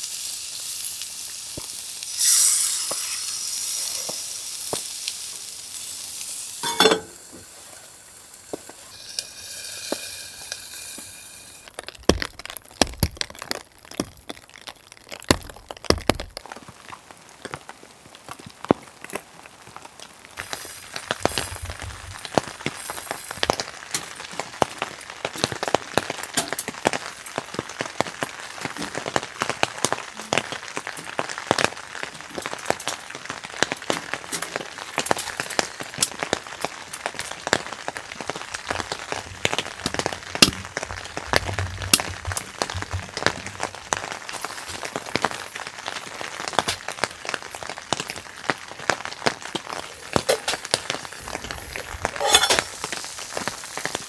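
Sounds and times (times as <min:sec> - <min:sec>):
rain drops tapping on tent fabric: 0:11.7 - 0:54.0.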